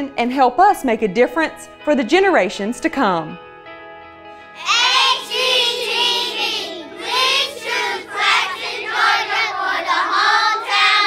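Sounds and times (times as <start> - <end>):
children singing in unison: 4.6 - 11.0.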